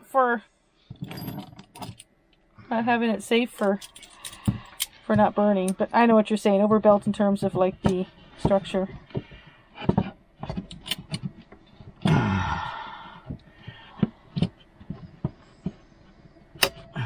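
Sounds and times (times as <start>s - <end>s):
wood creaking: 6.8s - 17.0s.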